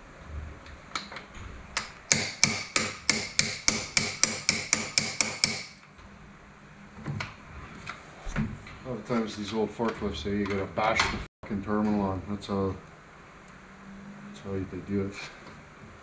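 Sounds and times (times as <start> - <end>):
hammer striking metal clamp: 1.8 - 5.8.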